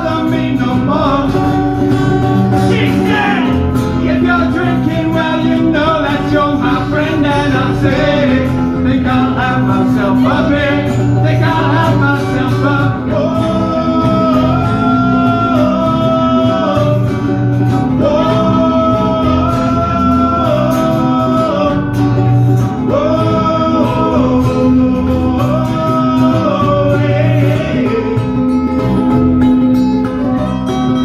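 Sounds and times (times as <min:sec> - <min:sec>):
electric bass: 0:00.0 - 0:31.0
strummed acoustic guitars: 0:00.0 - 0:31.0
person singing wordless notes: 0:02.6 - 0:17.1.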